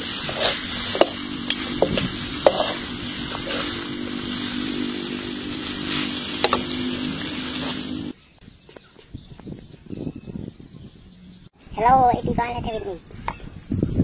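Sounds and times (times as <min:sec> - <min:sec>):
noodles sizzling in a pan: 0:00.0 - 0:08.1
steady low hum: 0:00.0 - 0:08.2.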